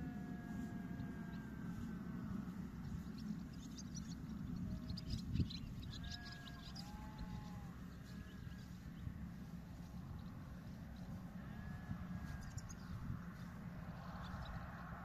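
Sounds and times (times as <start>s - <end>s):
distant sheep bleating: 0.0s - 3.1s, 5.7s - 14.8s
low rumble: 0.0s - 15.0s
bird chirps: 2.5s - 11.2s.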